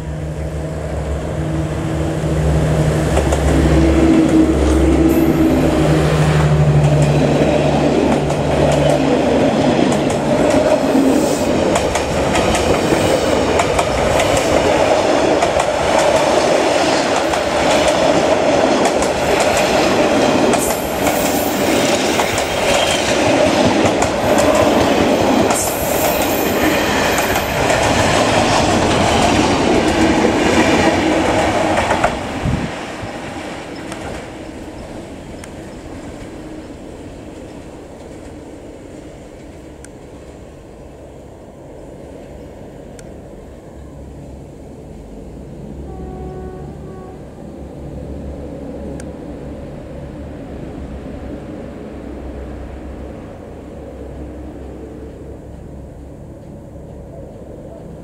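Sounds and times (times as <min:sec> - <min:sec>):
diesel locomotive engine hum: 0:00.0 - 0:58.0
train coaches rumbling past: 0:00.0 - 0:58.0
wheels clacking over rail joints: 0:06.4 - 0:10.9.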